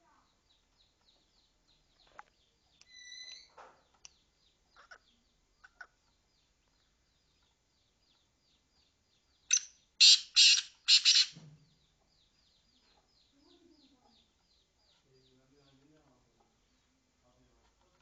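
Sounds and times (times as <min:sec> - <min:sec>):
faint high chirps: 0:02.0 - 0:04.2.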